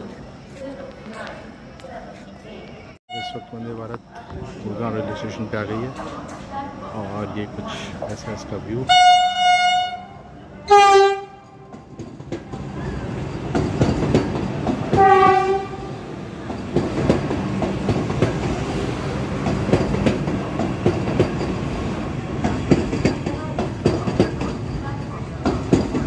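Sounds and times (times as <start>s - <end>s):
rumble of train coaches rolling: 0.0s - 26.0s
train horn blasts: 3.1s - 3.6s, 8.9s - 11.5s, 15.0s - 16.0s.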